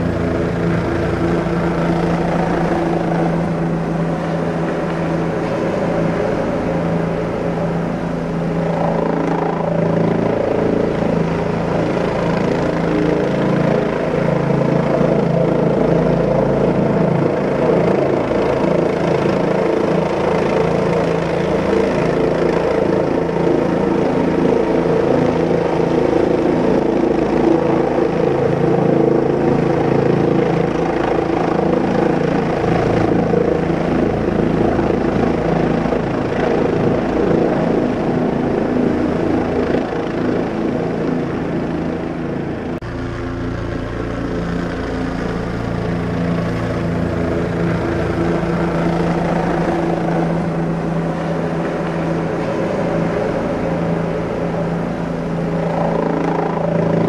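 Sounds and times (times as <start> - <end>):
helicopter engine and rotor drone: 0.0 - 57.0.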